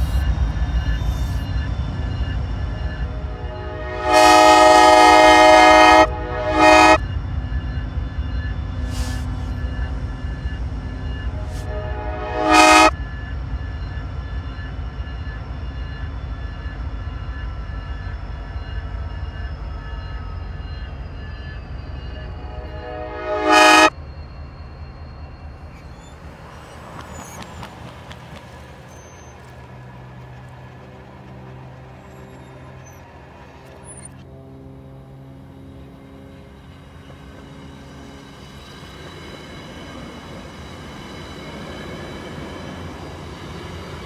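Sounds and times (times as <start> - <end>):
reversed train horn blasts: 0.0 - 13.8, 18.5 - 24.1, 32.2 - 38.2
locomotive engine rumbling: 0.0 - 44.0.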